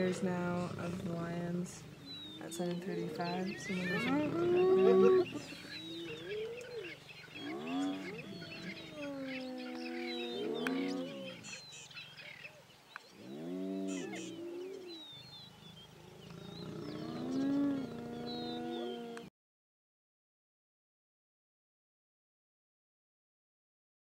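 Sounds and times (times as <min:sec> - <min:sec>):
hyenas lowing and groaning: 0:00.0 - 0:11.6, 0:13.2 - 0:19.3
small birds chirping: 0:00.0 - 0:19.3.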